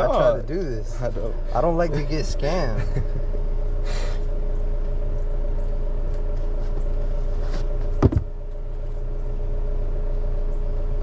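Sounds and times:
car engine idling: 0.0s - 11.0s
sharp thump: 7.9s - 8.3s.

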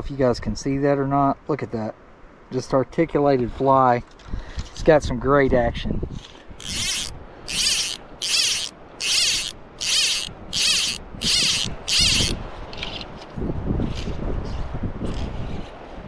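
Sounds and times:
fly reel ratcheting clicks: 6.6s - 13.0s.

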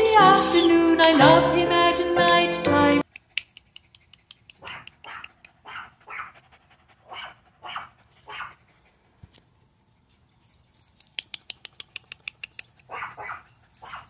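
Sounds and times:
dog barking: 4.6s - 6.4s, 7.1s - 8.6s, 12.9s - 14.0s.

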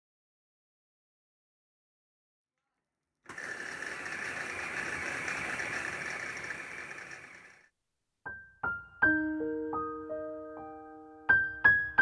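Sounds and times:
hand blender motor whirring: 3.3s - 7.7s.

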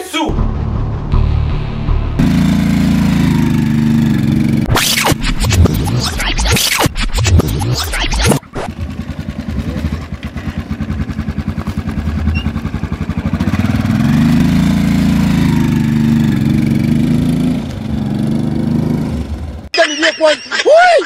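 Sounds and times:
motorcycle engine revving: 0.3s - 6.0s, 8.2s - 19.7s
loud burst of noise: 0.3s - 8.4s.

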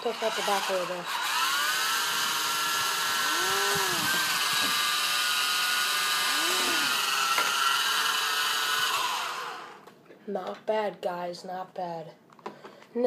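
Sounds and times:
toy helicopter motor whine: 0.0s - 9.8s
lower whir: 0.2s - 9.8s.

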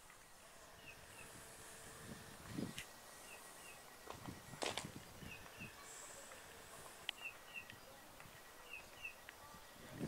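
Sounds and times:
quiet footsteps: 2.4s - 9.8s
bird chirps: 3.1s - 6.1s, 7.1s - 9.5s.

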